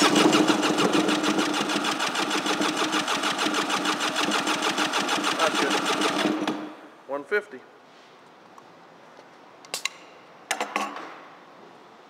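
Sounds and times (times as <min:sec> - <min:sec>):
engine cranked by starter: 0:00.0 - 0:06.6.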